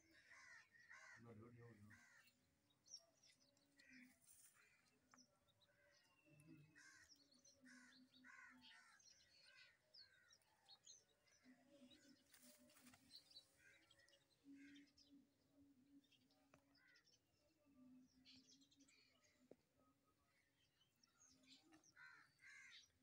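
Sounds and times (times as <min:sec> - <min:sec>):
crows cawing: 0:00.0 - 0:02.4, 0:06.6 - 0:10.3, 0:22.0 - 0:22.9
small birds chirping: 0:00.0 - 0:23.0.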